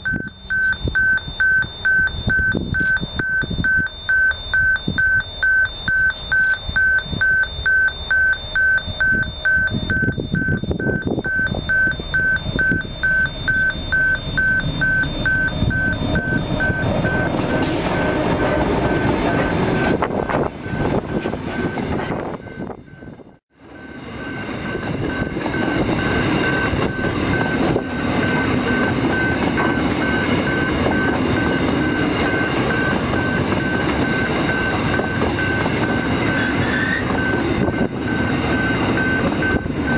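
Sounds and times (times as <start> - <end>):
level crossing warning bell: 0.0 - 39.9
diesel locomotive passing: 3.1 - 39.9
tank wagons rumbling past: 11.6 - 22.6.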